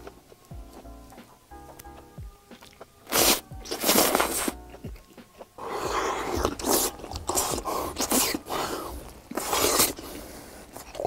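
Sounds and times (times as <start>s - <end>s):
man biting and slurping cheese: 2.6s - 11.0s.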